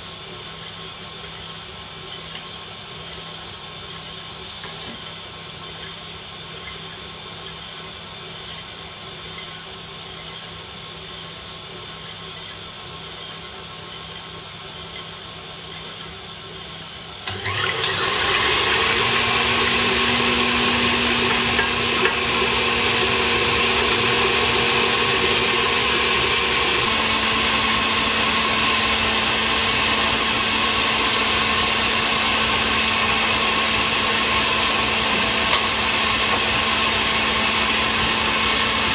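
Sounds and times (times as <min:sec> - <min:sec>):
stand mixer whisking: 0:17.2 - 0:38.9.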